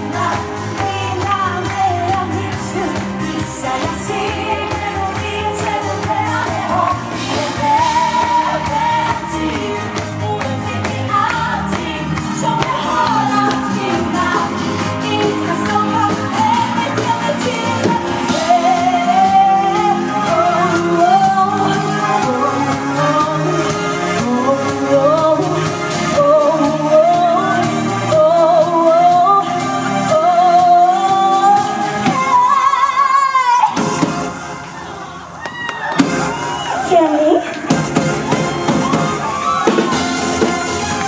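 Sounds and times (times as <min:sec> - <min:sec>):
woman singing pop song: 0:00.0 - 0:34.3, 0:36.6 - 0:37.8
band with steady drum beat: 0:37.6 - 0:41.0.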